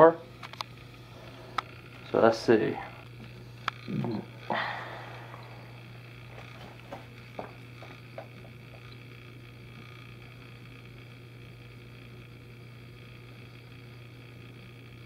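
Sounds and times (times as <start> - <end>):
low hum: 0.0 - 15.0
feet tapping on scale: 6.3 - 9.0.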